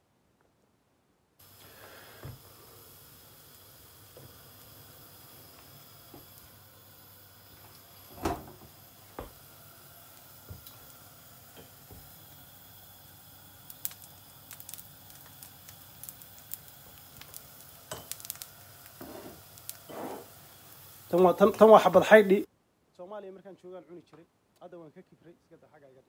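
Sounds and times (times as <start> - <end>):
pancake sizzling in a pan: 1.4 - 22.5
small ticks and crackles: 13.5 - 19.9.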